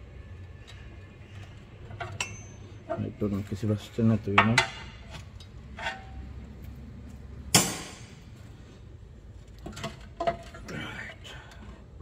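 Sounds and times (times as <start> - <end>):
sharp metal clang: 7.5 - 8.2.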